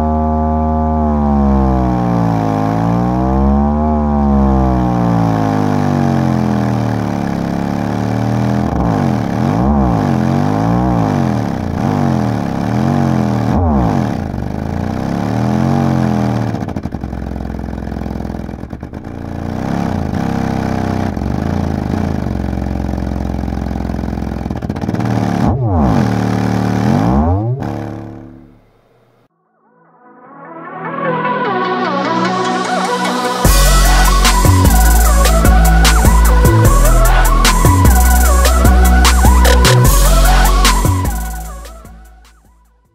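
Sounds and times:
subwoofer deep bass tones sliding: 0.0s - 6.0s, 25.1s - 28.7s, 33.4s - 42.6s.

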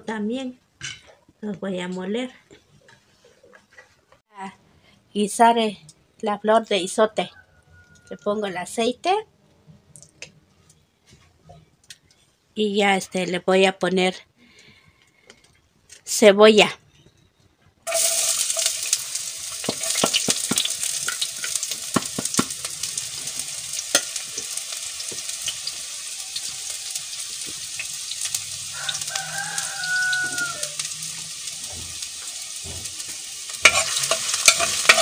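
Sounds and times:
rooster crowing: 7.3s - 8.3s, 25.8s - 27.4s, 28.4s - 31.9s
onion sizzling in hot oil: 17.9s - 35.0s
spoon stirring and scraping pot: 19.6s - 25.8s, 31.6s - 35.0s.

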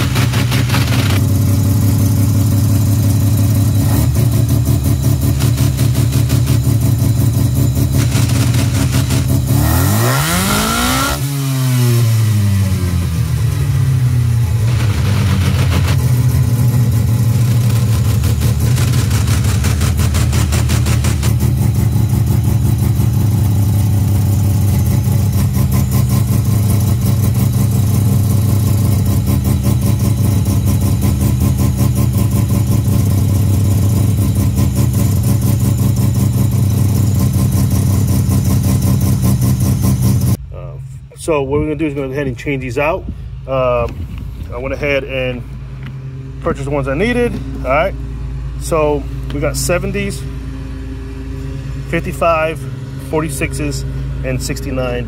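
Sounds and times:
rotary engine idling and revving: 0.0s - 40.4s, 41.5s - 55.0s.

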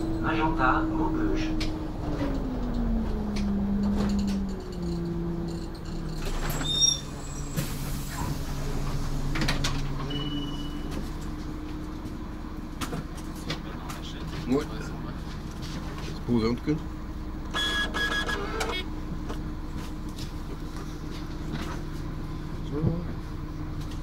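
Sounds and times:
bus engine and transmission: 0.0s - 24.0s
high beep: 10.1s - 10.9s.

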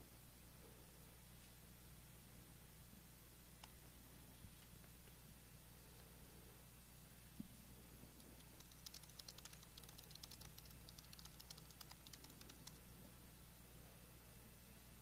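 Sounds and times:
steady low hum: 0.0s - 15.0s
keyboard typing clicks: 8.2s - 12.8s.

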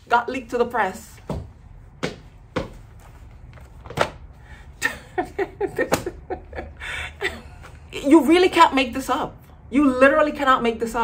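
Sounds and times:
woman breathing: 4.4s - 4.8s, 6.7s - 7.8s.

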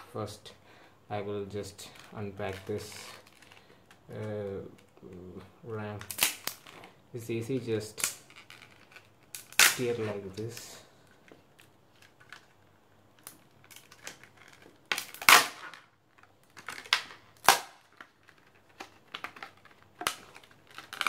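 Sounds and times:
plastic packaging crackling: 1.8s - 5.2s, 5.9s - 21.0s
sharp plastic snaps: 5.9s - 6.9s, 7.9s - 12.6s, 13.2s - 21.0s.

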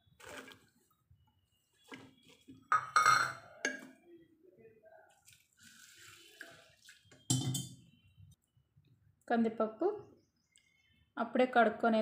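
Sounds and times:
metal kitchenware clattering: 2.6s - 3.9s, 7.2s - 7.8s.

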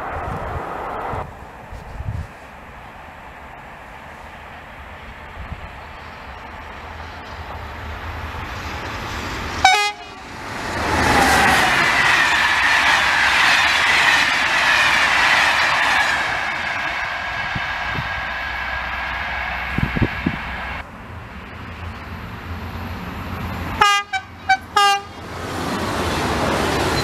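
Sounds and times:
train rushing past: 0.0s - 27.0s
train horn blast: 9.6s - 10.2s, 23.8s - 25.2s.

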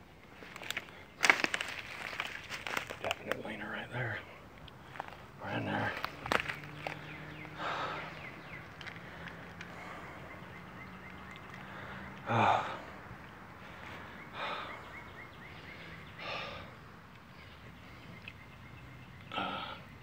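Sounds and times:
brush rustling: 0.2s - 3.7s, 4.6s - 7.1s
person breathing hard: 7.5s - 10.4s, 11.6s - 18.1s.

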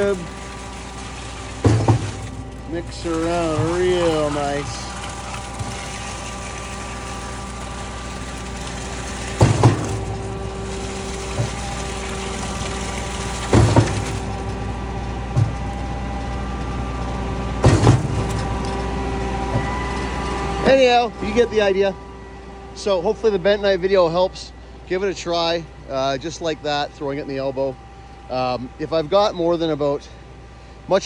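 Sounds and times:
concrete pump running: 0.0s - 31.0s
loud double clunk: 17.6s - 18.4s.

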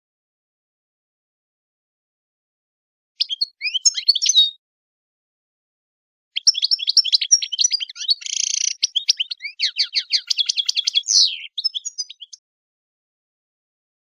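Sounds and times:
songbird singing chirps and trills: 3.2s - 4.6s, 6.4s - 12.4s.

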